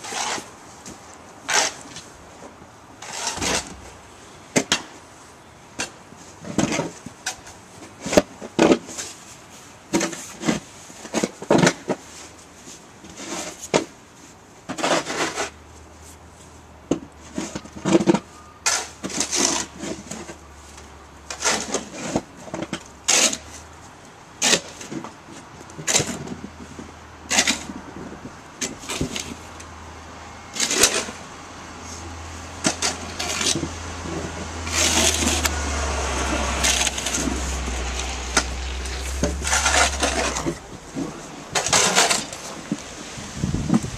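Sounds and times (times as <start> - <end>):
low engine hum: 31.3 - 41.7
scrapes and knocks: 32.6 - 42.9.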